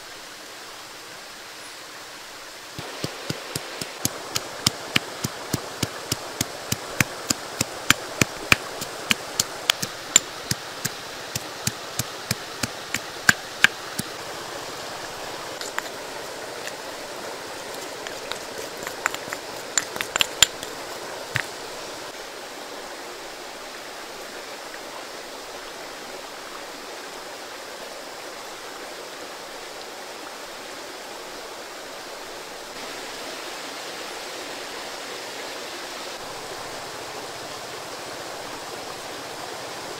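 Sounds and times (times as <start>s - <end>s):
steady hiss: 0.0s - 26.1s
pestle pounding in a mortar: 2.8s - 14.1s, 17.7s - 21.6s.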